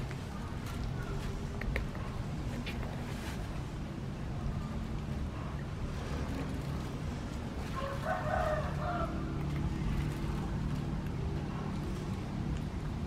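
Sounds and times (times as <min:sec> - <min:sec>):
rooster crowing: 0:07.7 - 0:09.3.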